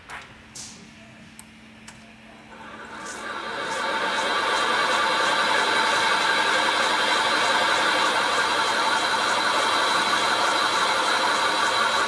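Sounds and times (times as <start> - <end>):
machinery whine: 2.4 - 12.0.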